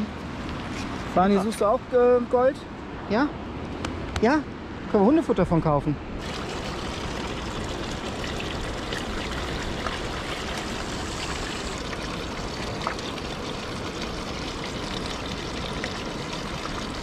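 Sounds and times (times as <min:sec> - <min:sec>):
water rushing down sluice box: 0:06.2 - 0:17.0.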